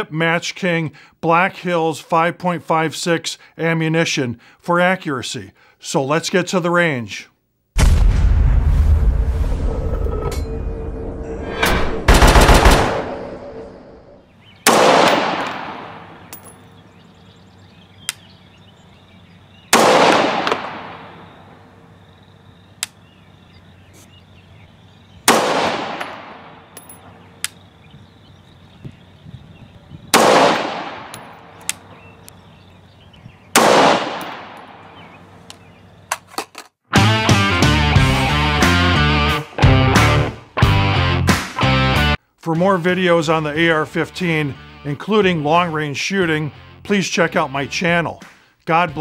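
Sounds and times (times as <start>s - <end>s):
loud low boom: 7.8s - 14.2s
rifle shots echoing: 12.1s - 13.2s, 14.6s - 16.8s, 19.7s - 21.6s, 25.2s - 27.2s, 30.1s - 31.9s, 33.5s - 34.9s.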